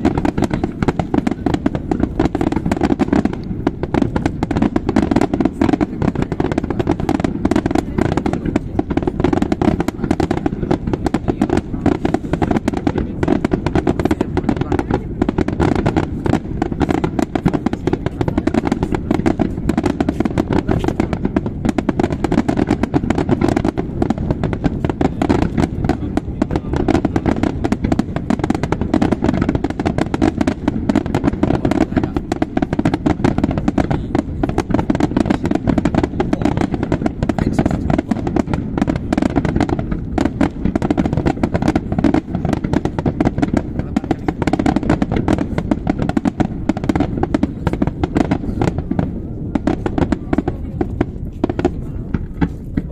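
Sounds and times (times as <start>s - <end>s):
fireworks bursting and crackling: 0.0s - 52.9s.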